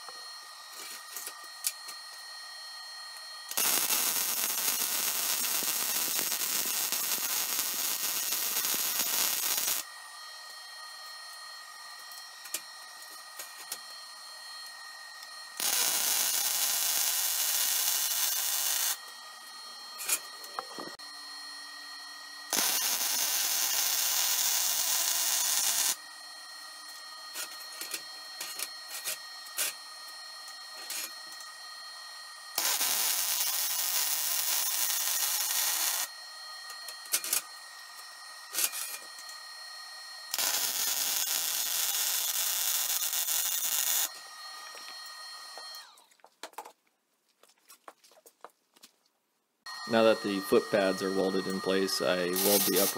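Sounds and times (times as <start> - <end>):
welder arc crackling and hissing: 3.4 - 10.6, 15.1 - 21.0, 22.5 - 26.0, 32.3 - 36.1, 40.2 - 45.0, 49.9 - 52.9.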